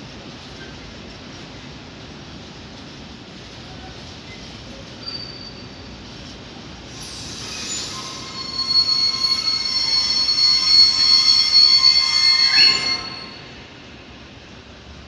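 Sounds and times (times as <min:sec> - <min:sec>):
train wheels squealing: 0:04.2 - 0:14.3.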